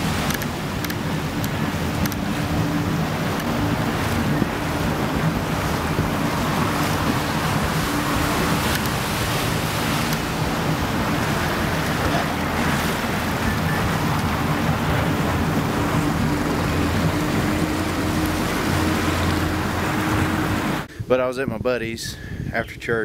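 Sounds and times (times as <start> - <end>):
motorboat engine humming: 0.0 - 21.0
water rushing past hull: 0.0 - 21.0
wind: 0.0 - 23.0.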